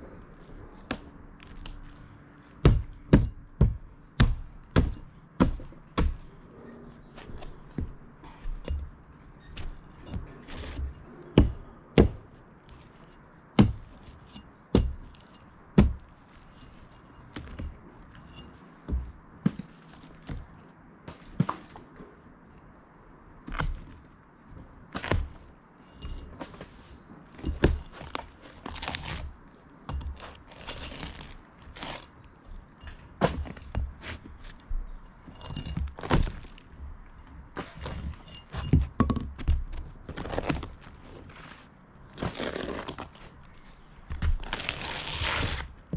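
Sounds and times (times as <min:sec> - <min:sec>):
rotten wood cracking: 0:27.5 - 0:32.6.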